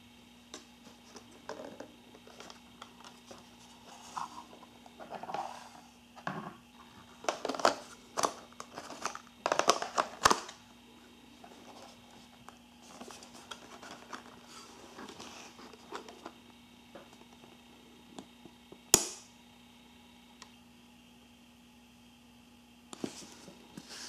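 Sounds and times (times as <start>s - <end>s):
handling plastic camera back: 7.2s - 10.6s.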